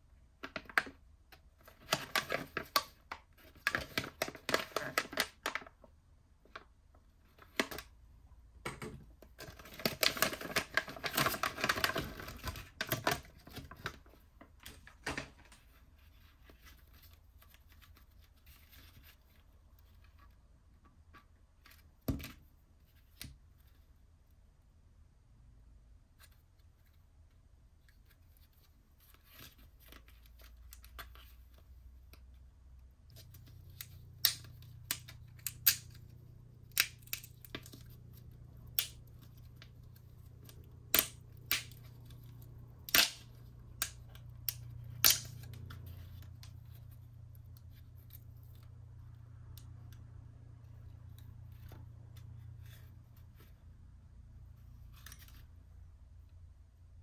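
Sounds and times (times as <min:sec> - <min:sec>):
low steady hum: 0:00.0 - 0:57.0
plastic blister packs crinkling: 0:09.3 - 0:15.6
sharp plastic snaps: 0:33.1 - 0:46.6.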